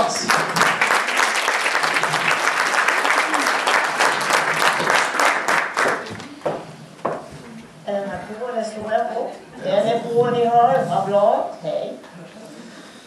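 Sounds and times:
audience applauding: 0.0 - 6.6.

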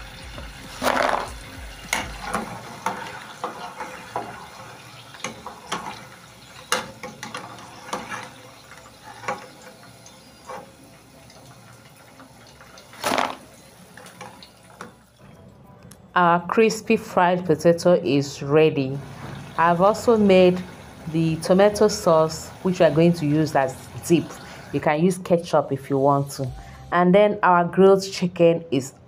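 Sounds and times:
chips frying in hot oil: 0.0 - 15.1, 18.8 - 26.4.

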